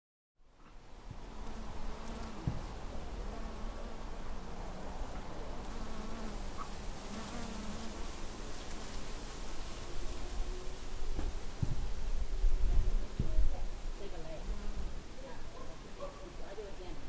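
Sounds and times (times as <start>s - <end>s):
flying insect buzzing: 1.3s - 4.5s, 5.6s - 11.1s
soft knock: 11.2s - 11.8s.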